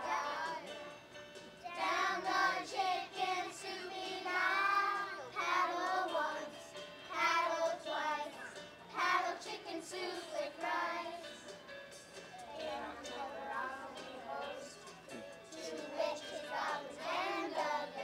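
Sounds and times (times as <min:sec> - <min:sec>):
children singing: 0:00.0 - 0:00.8, 0:01.8 - 0:06.5, 0:07.1 - 0:11.3, 0:12.6 - 0:14.9, 0:15.5 - 0:18.0.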